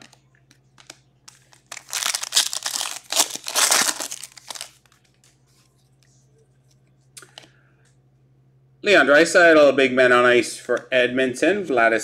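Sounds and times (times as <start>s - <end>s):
foil wrapper tearing and crinkling: 1.5s - 4.8s.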